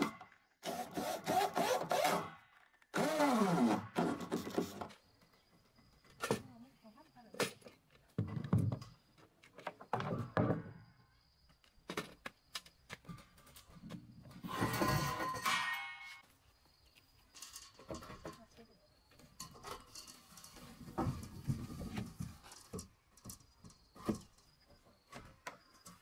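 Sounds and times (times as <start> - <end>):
electric drill driving screw: 0.6 - 2.3, 2.9 - 4.3.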